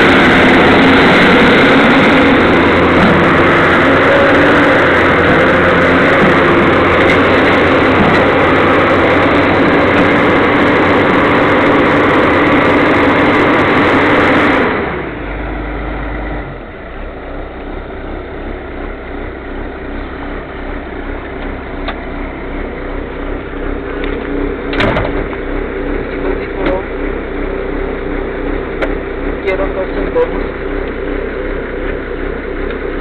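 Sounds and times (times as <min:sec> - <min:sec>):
excavator diesel engine running: 0:00.0 - 0:33.0.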